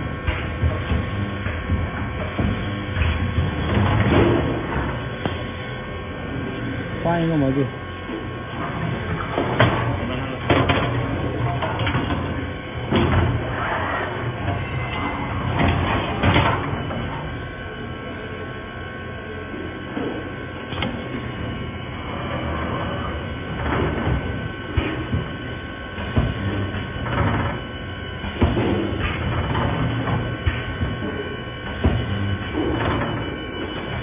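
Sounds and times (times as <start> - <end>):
welding machine mechanical din: 0.0 - 34.0.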